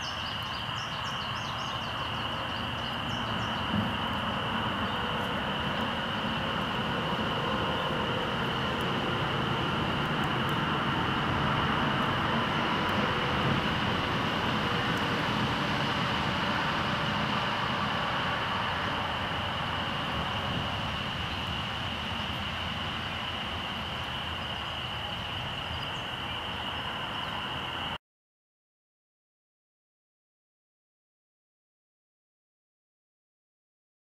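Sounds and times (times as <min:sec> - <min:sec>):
low rumble: 0:02.4 - 0:27.5.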